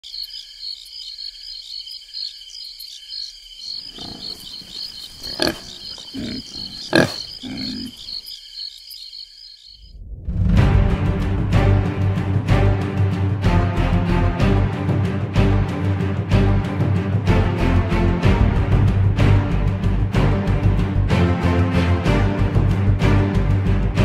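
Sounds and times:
night insects trilling: 0.0 - 10.2
wild boar grunting: 3.9 - 8.2
music: 10.2 - 24.0.

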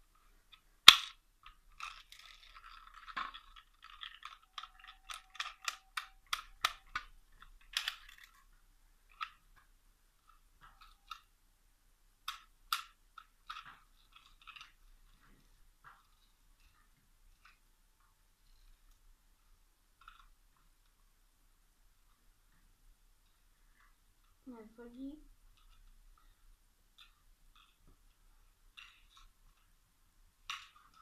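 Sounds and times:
toy gun plastic clicks: 0.8 - 8.4.

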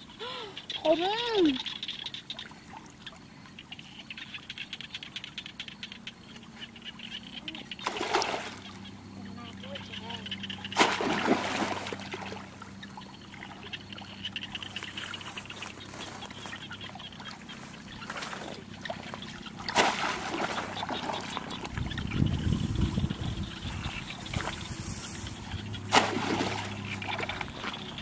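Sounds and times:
water sloshing and trickling: 0.0 - 28.0
water splashing: 0.8 - 28.0
low rumble: 21.6 - 28.0.

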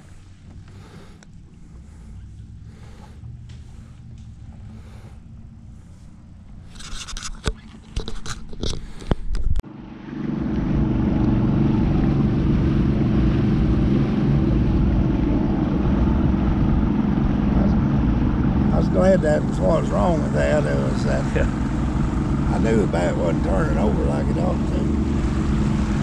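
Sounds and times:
knocks and scrapes on boat deck: 0.0 - 9.6
outboard motor running: 0.0 - 26.0
rush of wind and water: 6.8 - 26.0.

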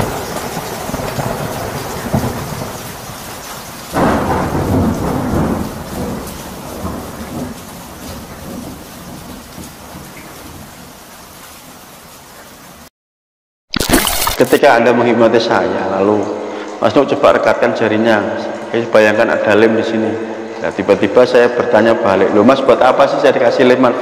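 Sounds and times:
steady rain: 0.0 - 12.9
thunderclap rumbling: 4.0 - 7.6.

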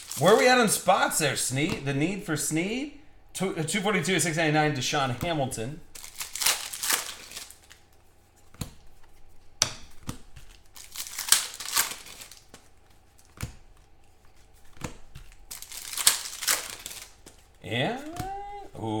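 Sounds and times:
wrappers crinkling and tearing: 0.0 - 0.8, 5.9 - 8.0, 10.2 - 18.4.

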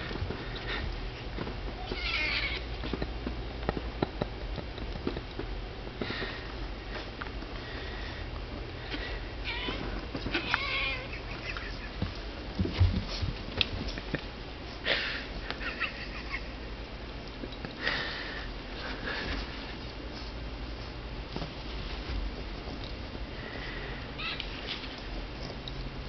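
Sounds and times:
knocks and scuffles: 12.0 - 14.0, 18.8 - 22.8.

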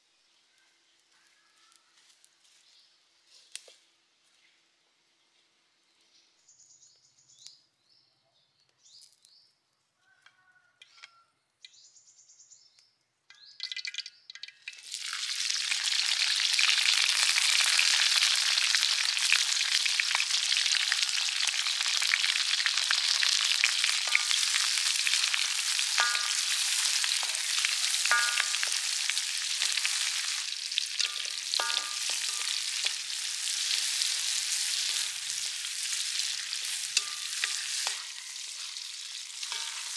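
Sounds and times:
vegetables sizzling in hot oil: 13.6 - 39.9
spatula scraping metal wok: 22.8 - 39.9.

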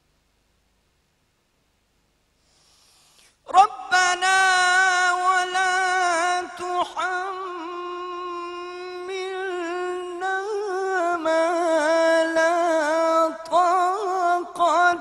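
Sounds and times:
man breathing in: 2.4 - 3.4
man reciting melodically: 3.4 - 15.0.

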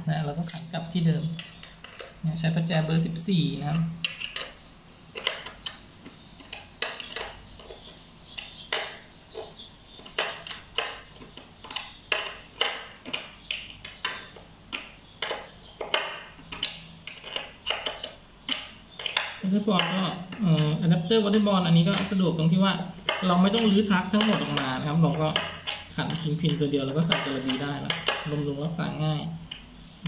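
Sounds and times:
wrench clinking on metal nut: 0.4 - 1.6.

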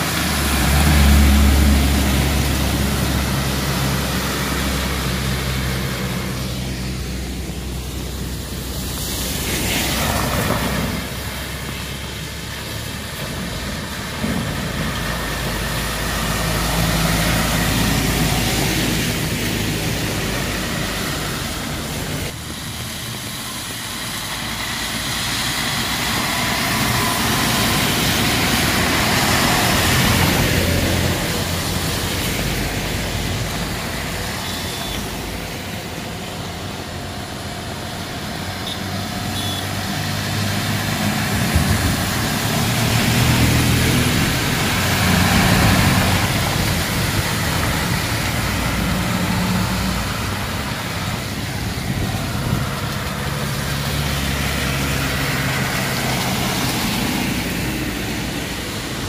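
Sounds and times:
diesel truck engines: 0.0 - 59.0
tyres hissing through water: 0.0 - 59.0.

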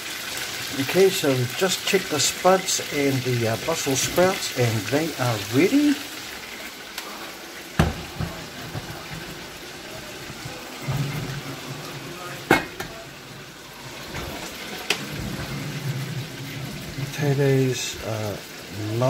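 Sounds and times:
chicken frying in oil: 0.0 - 19.0
pan and lid clanking: 12.4 - 13.0.

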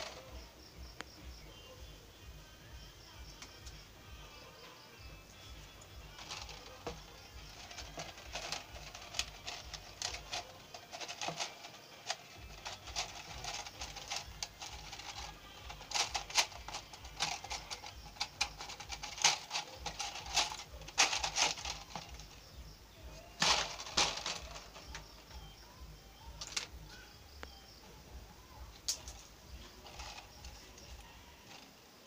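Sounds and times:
plastic bottle crinkling: 6.0 - 22.4, 23.2 - 25.0.

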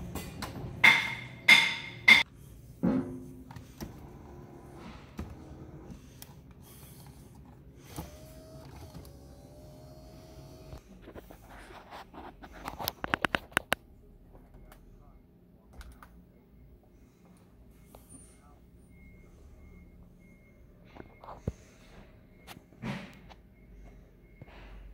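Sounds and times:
power seat motor humming: 3.6 - 10.8.

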